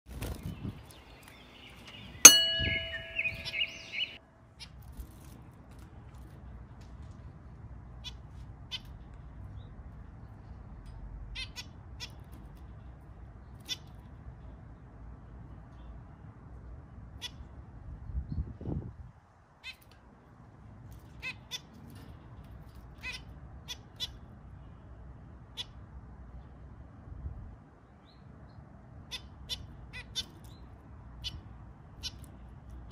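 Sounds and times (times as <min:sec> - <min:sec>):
finches chirping: 0:00.4 - 0:04.2
high bird chirping and warbling: 0:00.4 - 0:04.2
loud metallic ding: 0:02.3 - 0:04.2.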